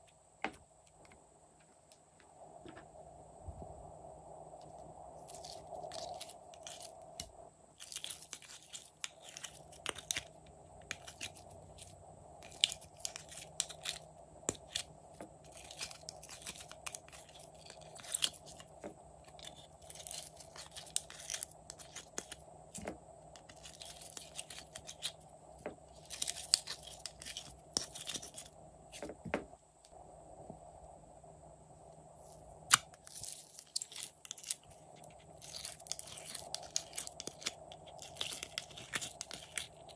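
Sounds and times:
sticky slime crackling and popping: 32.7 - 39.9.

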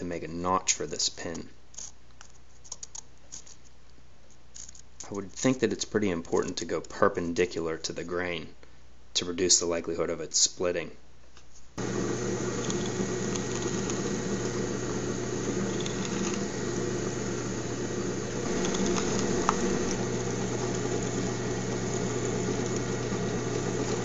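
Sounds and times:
drill press boring wood: 11.8 - 24.0.

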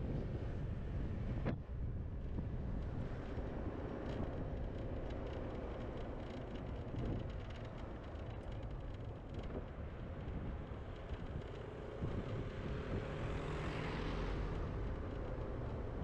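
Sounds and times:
car passing with tyre noise: 9.9 - 16.0.

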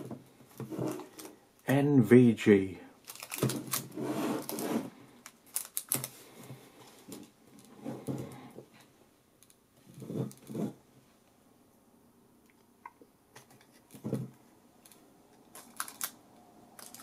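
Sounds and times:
plastic toy clicking and rubbing: 15.6 - 16.2, 16.8 - 17.0.

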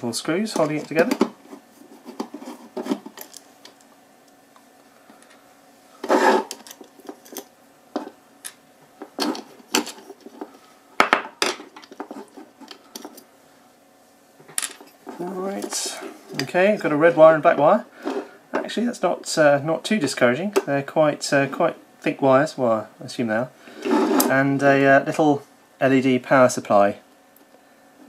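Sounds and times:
handling noise: 0.5 - 3.9.

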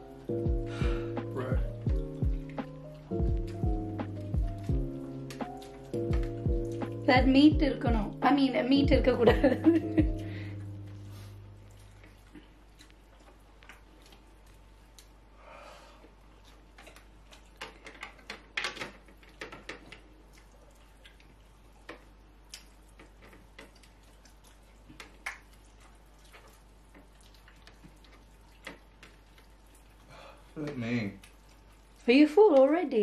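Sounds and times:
chewing: 0.0 - 7.1, 10.0 - 15.3, 16.0 - 32.8
fingers clicking on plastic plates: 16.9 - 20.5.

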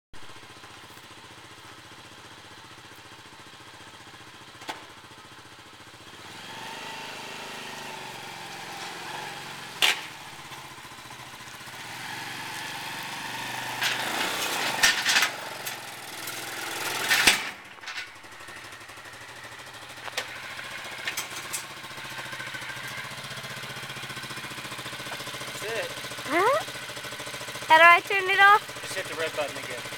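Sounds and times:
quad bike engine idling and revving: 0.2 - 29.9.

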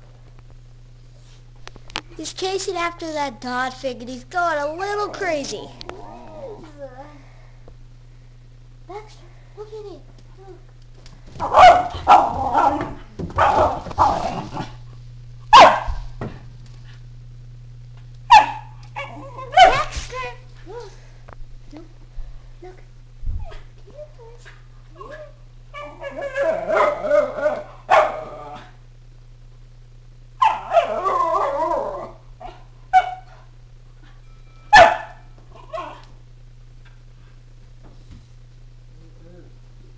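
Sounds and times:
dog howling: 5.9 - 6.7, 25.0 - 28.8, 30.4 - 32.2
dog barking excitedly: 11.4 - 14.8, 15.5 - 16.0, 18.3 - 20.4, 25.8 - 28.3, 30.4 - 31.6, 32.4 - 33.5, 34.7 - 36.0.

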